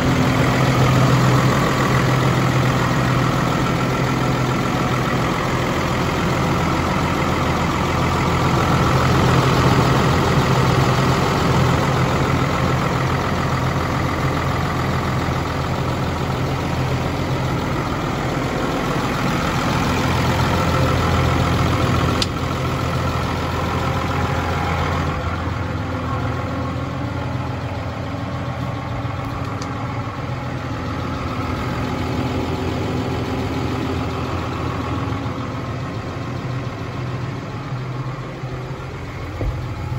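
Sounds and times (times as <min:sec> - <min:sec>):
tractor diesel engine idling: 0:00.0 - 0:39.9
click: 0:29.3 - 0:29.8.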